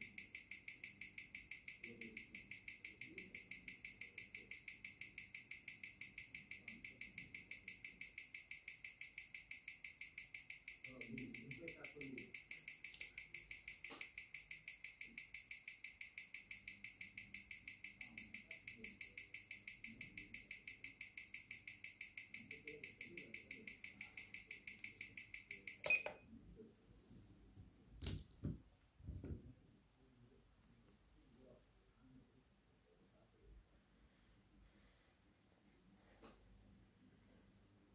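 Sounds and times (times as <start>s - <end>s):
watch ticking: 0.0s - 26.2s.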